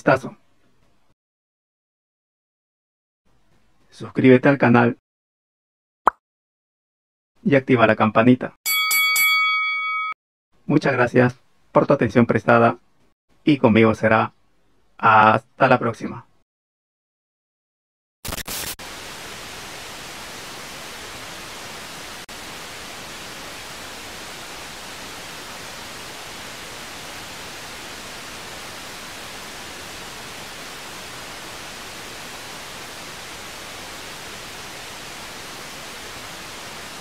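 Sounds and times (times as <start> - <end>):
static-like hiss: 18.2 - 37.0.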